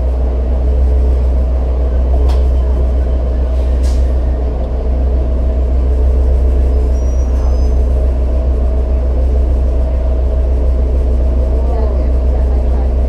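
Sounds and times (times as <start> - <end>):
bus engine rumbling: 0.0 - 13.0
faint high squeal: 6.7 - 7.9.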